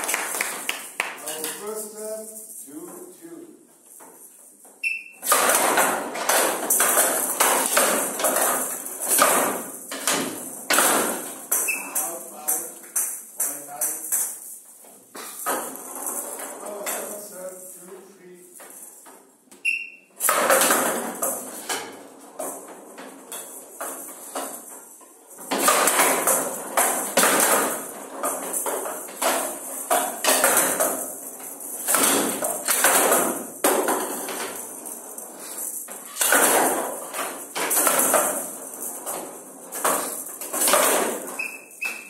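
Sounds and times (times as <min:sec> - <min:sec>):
rattle ball jingling as it rolls: 0:03.9 - 0:19.3, 0:20.2 - 0:42.0
ball knocking on bats and rails: 0:04.0 - 0:17.1, 0:18.6 - 0:42.0.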